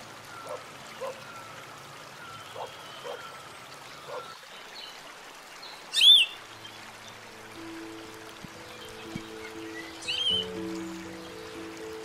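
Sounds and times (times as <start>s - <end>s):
forest ambience hiss: 0.0s - 12.0s
bird whistled call: 5.9s - 6.4s.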